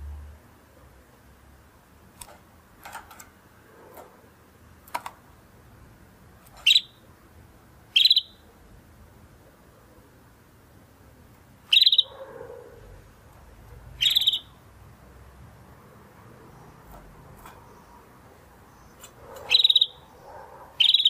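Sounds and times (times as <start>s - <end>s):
canary chirping: 6.4s - 7.1s, 7.9s - 8.5s, 11.6s - 12.7s, 13.8s - 14.6s, 16.3s - 21.0s.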